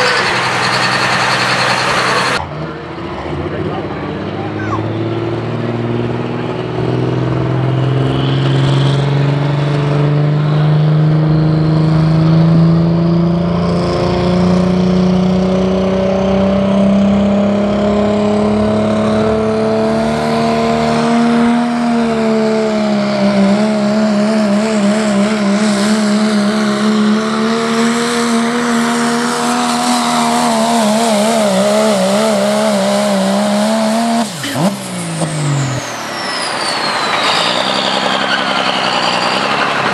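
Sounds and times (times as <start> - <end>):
truck engine under full load: 0.0 - 39.9.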